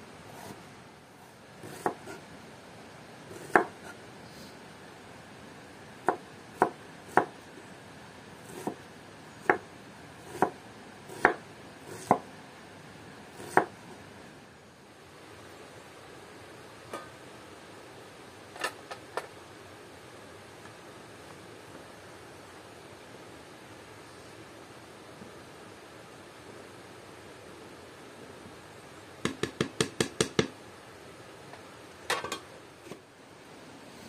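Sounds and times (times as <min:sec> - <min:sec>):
knife chopping on cutting board: 0:01.6 - 0:02.2, 0:03.3 - 0:04.0, 0:08.5 - 0:08.8, 0:10.3 - 0:12.2, 0:13.4 - 0:13.7.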